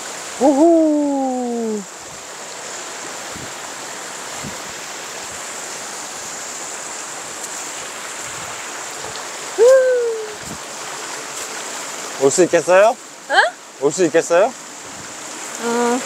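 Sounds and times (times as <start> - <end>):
stream rushing over rocks: 0.0 - 16.0
person calling out: 0.4 - 1.9, 9.6 - 10.4, 13.3 - 13.6.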